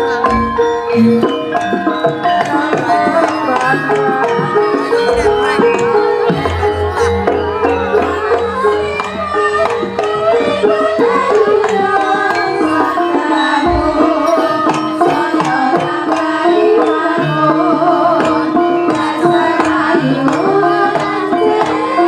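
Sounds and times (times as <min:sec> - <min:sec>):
hand drums beating: 0:00.0 - 0:22.0
melodic instruments holding notes: 0:00.0 - 0:22.0.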